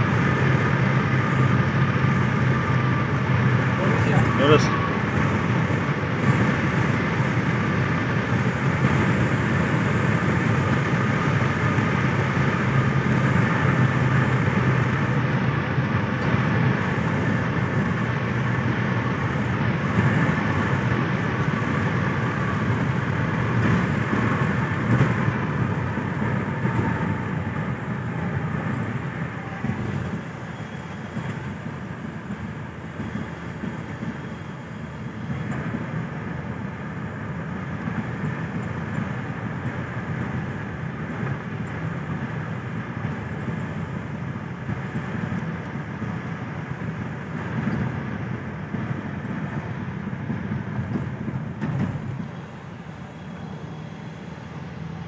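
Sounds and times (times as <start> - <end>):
tyres and engine drone in car: 0.0 - 55.0.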